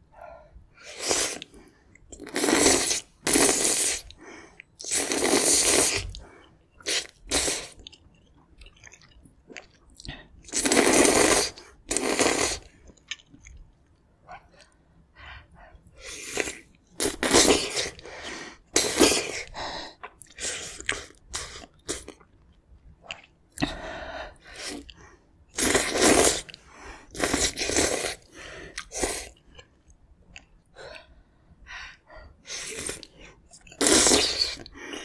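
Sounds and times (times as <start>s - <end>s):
slurping noodles: 0.8s - 1.6s, 2.2s - 4.2s, 4.8s - 6.2s, 6.8s - 7.8s, 10.4s - 12.7s, 16.0s - 19.5s, 25.5s - 29.4s, 32.5s - 35.0s
soft chewing: 6.0s - 10.6s, 12.6s - 18.0s, 19.9s - 23.8s, 24.4s - 25.2s, 28.2s - 31.2s.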